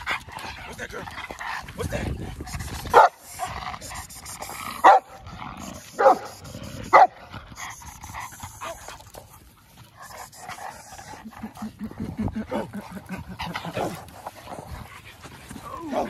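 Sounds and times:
dogs scuffling and breathing: 0.0 - 16.0
large dog barking: 2.9 - 3.2, 4.8 - 5.2, 5.9 - 7.2.

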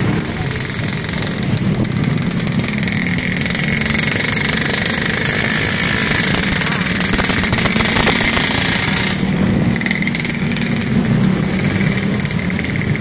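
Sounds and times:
motorcycle engines puttering: 0.0 - 13.0.

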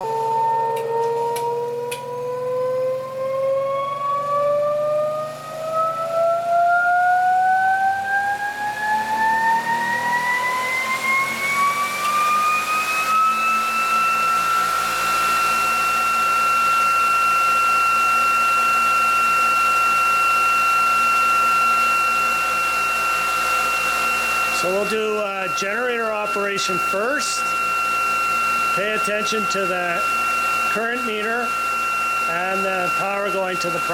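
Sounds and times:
electric motor whine rising: 0.0 - 33.9.

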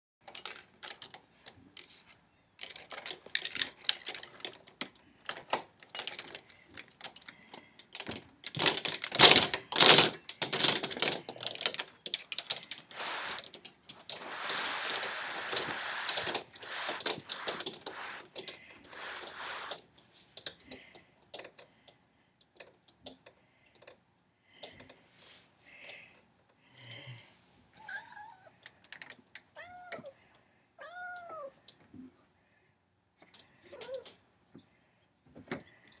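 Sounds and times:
scratchy rustle: 12.8 - 20.3.

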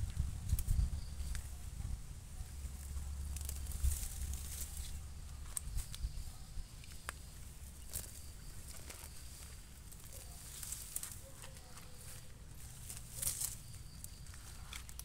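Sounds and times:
stems snapping: 0.0 - 1.6, 2.6 - 6.1, 6.8 - 15.0
steady low rumble: 0.0 - 11.0
plants rustling: 0.0 - 15.0.

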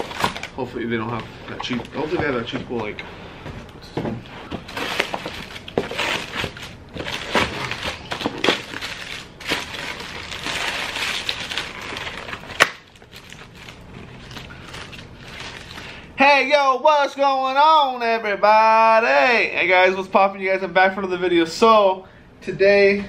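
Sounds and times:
paper wrappers rustling: 0.0 - 3.0, 4.4 - 16.1.

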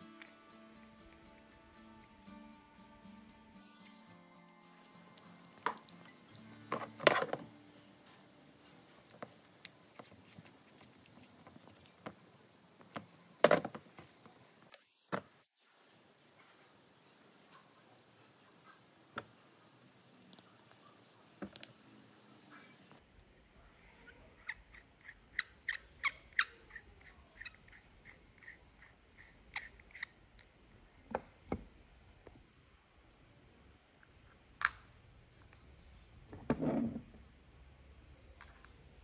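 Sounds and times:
small parts clicking: 24.4 - 30.9.

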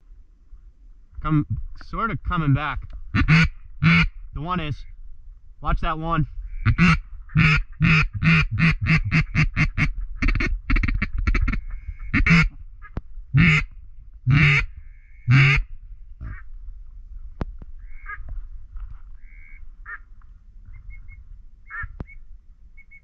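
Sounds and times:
duck call quacks: 3.1 - 4.2, 6.5 - 13.7, 14.3 - 15.7, 19.2 - 20.0.

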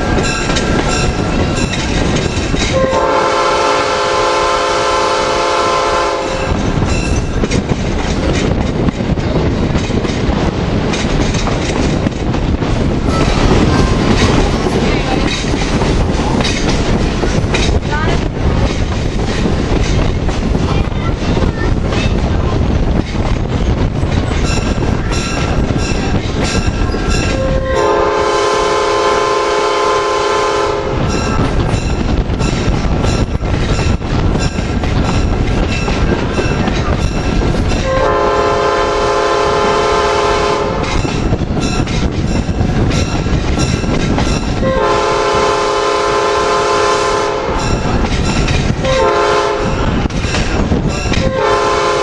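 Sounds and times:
train wheels clicking on rails: 0.0 - 52.0
locomotive horn blast: 2.7 - 6.6, 27.3 - 31.0, 37.8 - 40.9, 44.6 - 47.6, 48.8 - 49.8, 51.2 - 52.0.

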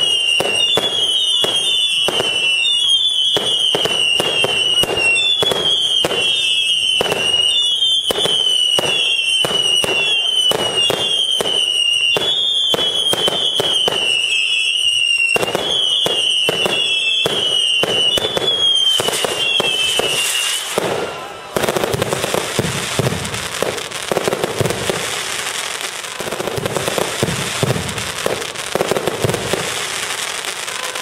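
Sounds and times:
shrill whistles dipping in pitch: 0.0 - 20.8
fireworks bangs: 0.0 - 31.0.

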